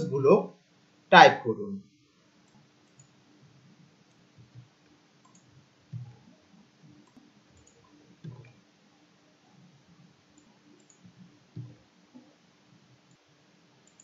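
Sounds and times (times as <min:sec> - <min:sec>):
keyboard typing: 0:02.4 - 0:03.2, 0:04.1 - 0:06.3, 0:07.0 - 0:08.6, 0:10.4 - 0:12.3
louder mouse clicks: 0:05.2 - 0:06.1.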